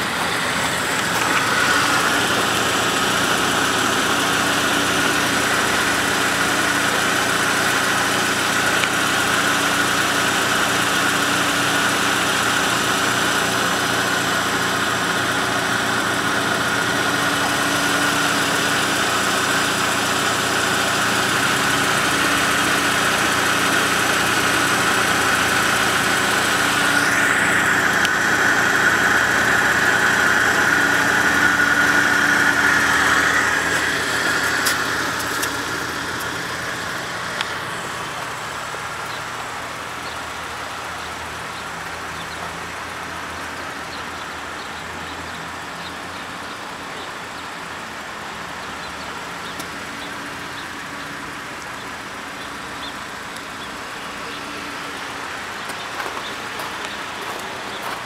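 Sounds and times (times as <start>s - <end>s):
high-pitched whine: 0.0s - 39.4s
car engine idling: 0.0s - 58.0s.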